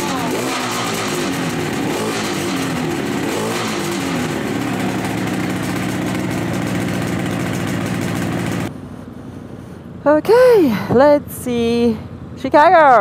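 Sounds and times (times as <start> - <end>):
two-stroke motorcycle engine revving: 0.0 - 8.7.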